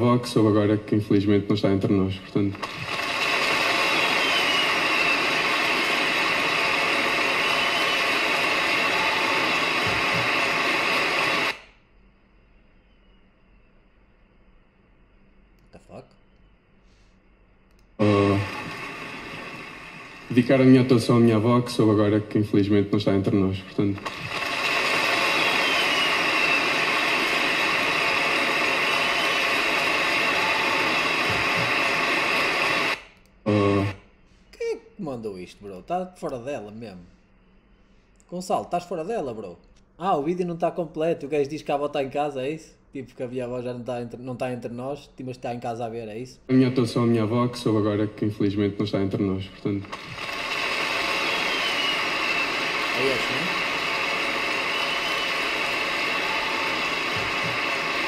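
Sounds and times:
audience applauding: 2.6 - 10.6, 24.0 - 33.0, 50.0 - 58.0.

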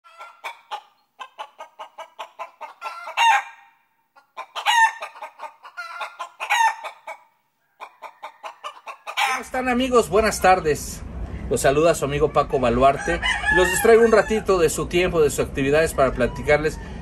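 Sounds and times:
chicken clucking: 0.1 - 9.5.

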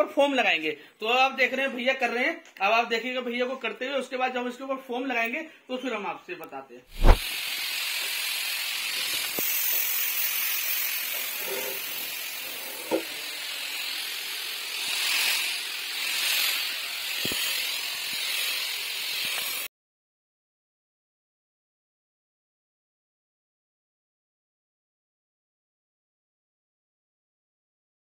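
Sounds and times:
spray gun hissing: 6.9 - 19.7.

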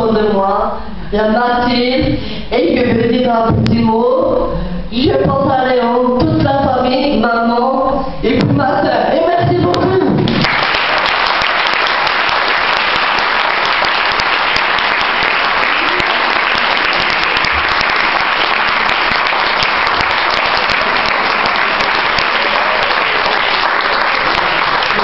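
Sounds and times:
audience applauding: 10.3 - 25.0.

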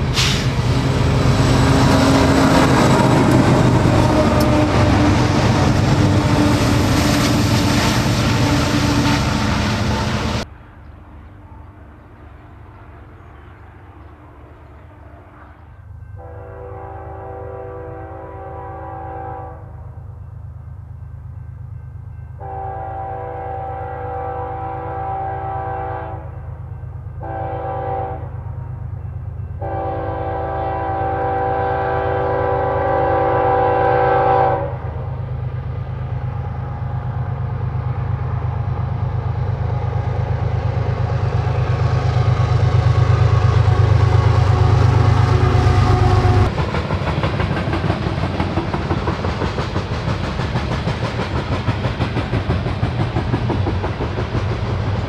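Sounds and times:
diesel locomotive engines: 0.0 - 55.0
train air horn blasts: 14.8 - 19.8, 22.4 - 26.4, 27.2 - 28.4, 29.6 - 35.0
train wheels clicking over rail joints: 41.0 - 55.0.

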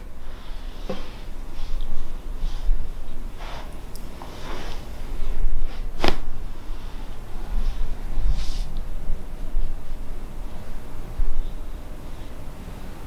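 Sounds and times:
soft breathing: 6.5 - 8.8.

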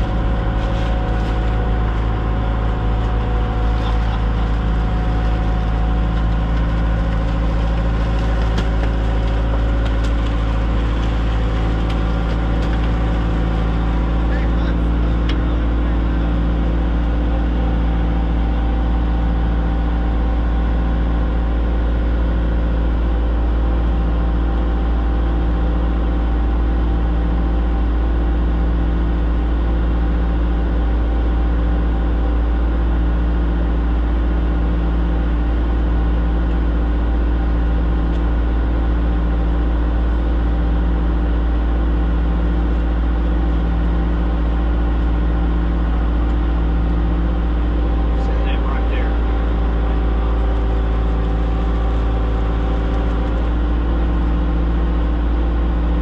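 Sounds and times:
engine idling: 0.0 - 56.0.

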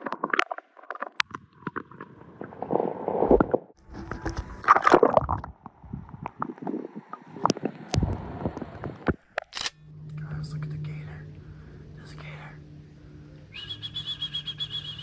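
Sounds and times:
water splashes: 0.0 - 9.3
water sloshing and gurgling: 0.0 - 9.4
sharp clicks: 9.1 - 9.8.

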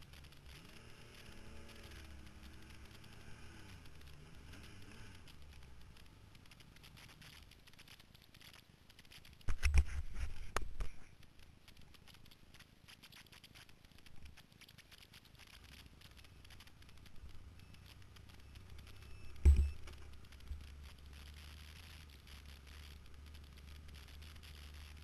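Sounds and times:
faint low rumble: 0.0 - 25.0
rubbing and scratching on camera: 0.0 - 25.0
low thumps and knocks: 19.4 - 20.6.

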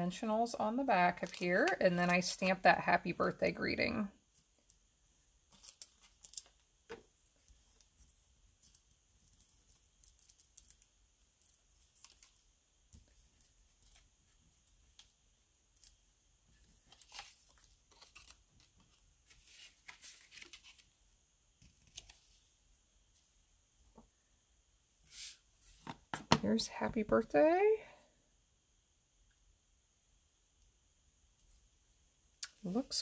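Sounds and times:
paper rustling: 16.6 - 21.0.

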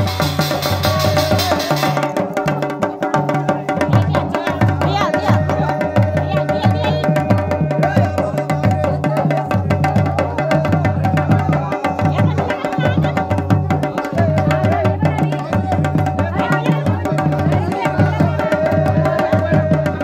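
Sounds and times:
drums beating a repeating rhythm: 0.0 - 20.0.

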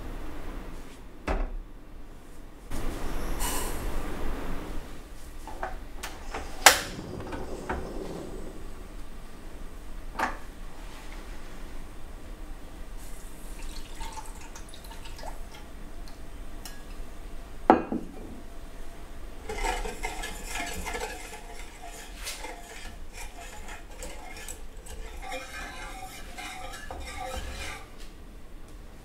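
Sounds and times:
whisk clinking in metal pan: 19.4 - 27.9
kitchen handling sounds: 19.4 - 28.2.

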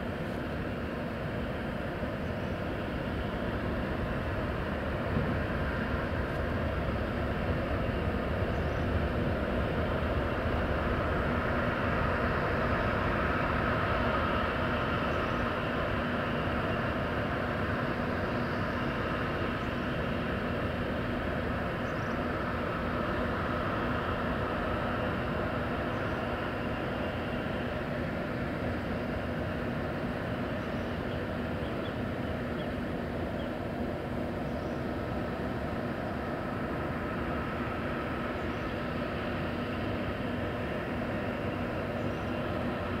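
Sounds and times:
jet engines rumbling: 0.0 - 43.0.

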